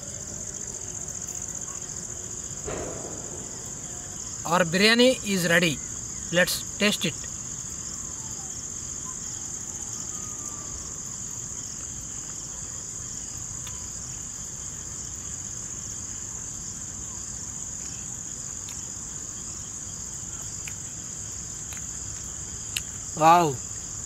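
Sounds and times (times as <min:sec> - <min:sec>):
crickets chirping: 0:00.0 - 0:24.0.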